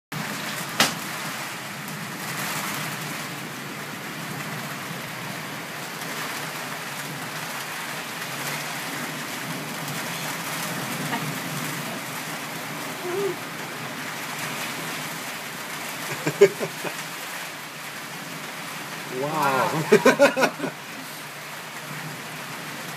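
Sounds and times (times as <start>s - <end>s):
steady rain: 0.1s - 22.9s.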